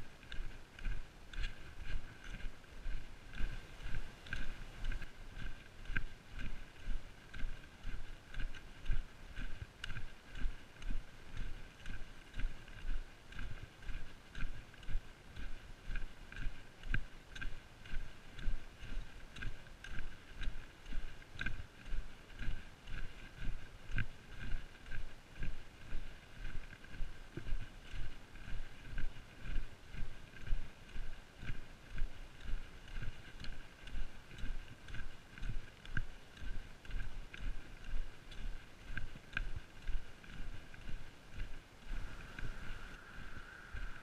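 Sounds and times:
footsteps on dirt track: 0.0s - 44.0s
trekking poles clicking: 0.2s - 12.9s.

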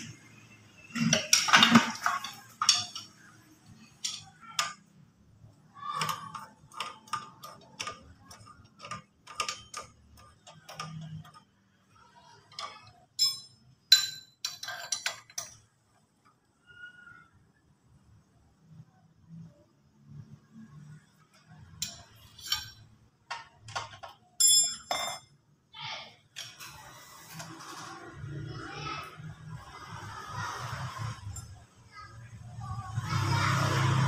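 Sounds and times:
metallic clicks and knocks: 1.0s - 5.0s, 5.8s - 11.8s.

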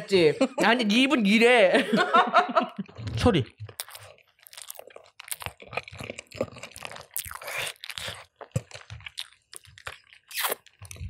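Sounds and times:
crunching and chewing food: 2.9s - 11.0s.

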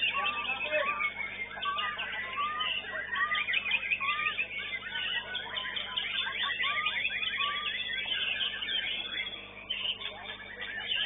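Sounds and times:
birds chirping and whistling: 0.0s - 11.0s
slurred bird whistle: 0.0s - 11.0s.

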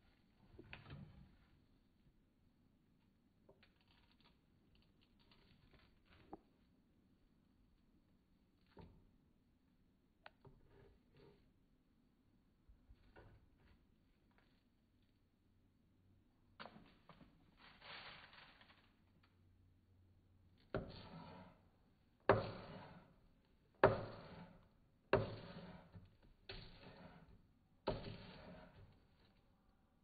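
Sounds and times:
knife chopping on cutting board: 20.8s - 21.5s, 22.3s - 23.2s, 23.8s - 24.6s, 25.2s - 27.3s, 27.9s - 28.8s.

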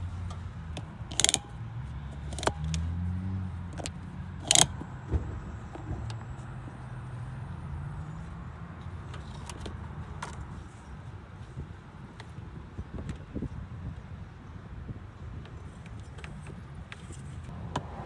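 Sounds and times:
low engine hum: 0.0s - 18.0s
handling clicks and knocks: 0.2s - 3.0s, 3.7s - 6.5s.

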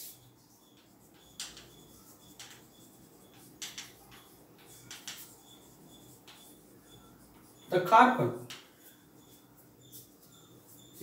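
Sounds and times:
chalk scratching on blackboard: 0.0s - 11.0s.

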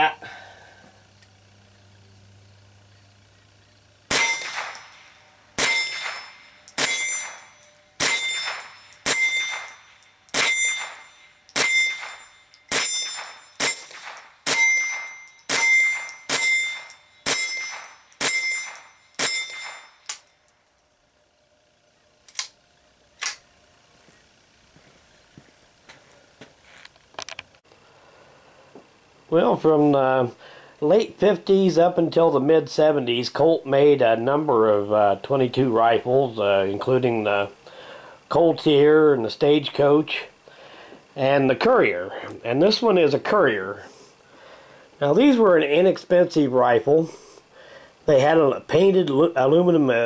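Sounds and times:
rifle shots: 4.1s - 20.0s.

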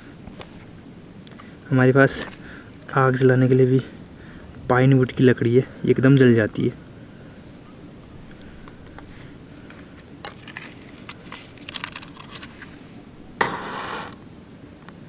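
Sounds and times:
sticks and matchbox clicking: 9.7s - 12.9s
match struck flaring: 13.4s - 14.2s.

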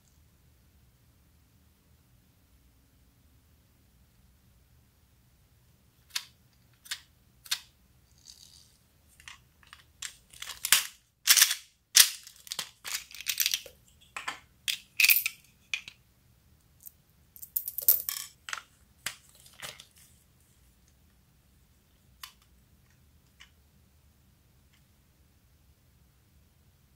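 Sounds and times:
plastic toy clicks and knocks: 6.1s - 16.0s.

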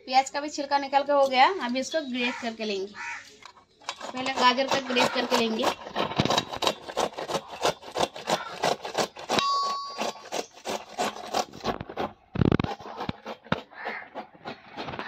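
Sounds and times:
carrot rasping on grater: 3.9s - 15.0s.

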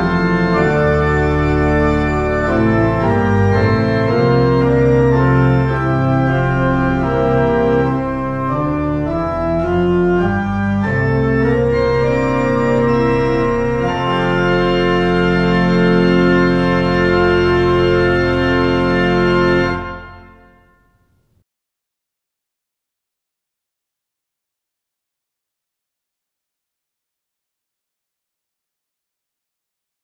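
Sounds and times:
pipe organ chords: 0.0s - 21.1s.

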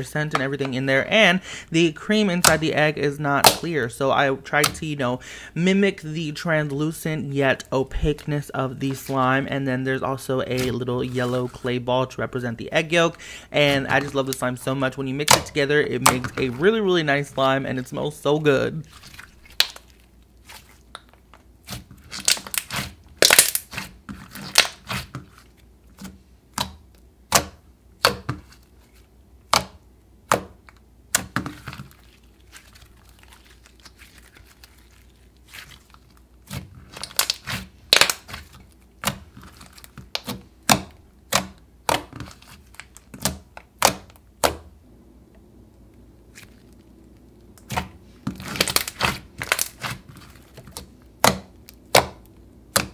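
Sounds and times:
slime clicking and popping: 22.2s - 23.8s.

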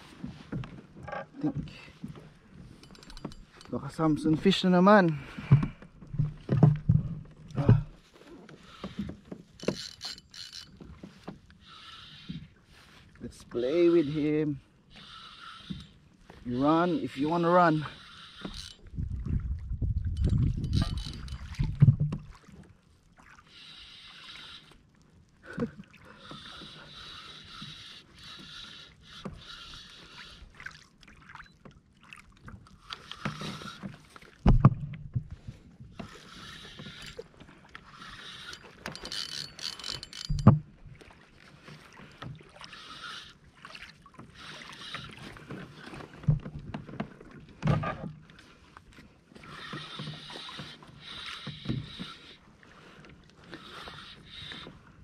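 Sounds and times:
fishing reel winding: 2.8s - 3.8s, 9.6s - 10.8s, 13.8s - 16.0s, 16.6s - 18.9s, 20.2s - 21.6s, 23.5s - 24.8s, 26.2s - 30.4s, 36.0s - 40.5s, 42.6s - 43.4s, 44.3s - 45.3s, 49.5s - 52.4s, 53.4s - 54.7s.

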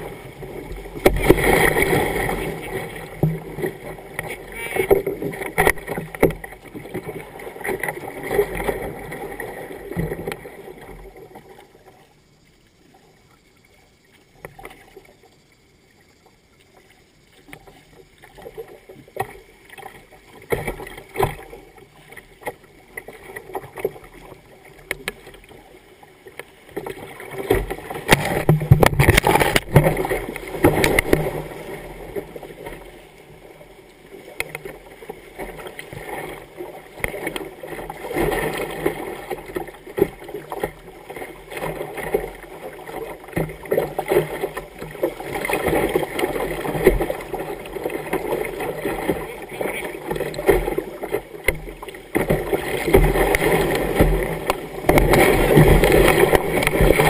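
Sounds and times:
paddle splashes: 0.0s - 57.0s
paddle knocking against hull: 0.9s - 11.1s, 26.8s - 31.6s, 41.5s - 57.0s.

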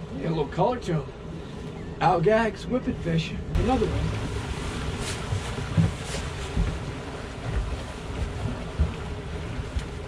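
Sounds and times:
outboard motors running: 0.0s - 10.0s
water churning: 3.1s - 10.0s
wind buffeting microphone: 3.5s - 10.0s.

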